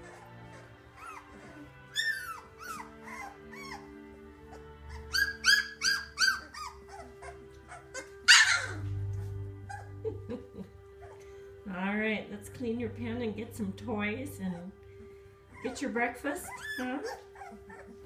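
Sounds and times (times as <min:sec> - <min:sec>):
puppies squeaking and whimpering: 0:00.0 - 0:11.5, 0:15.4 - 0:18.0.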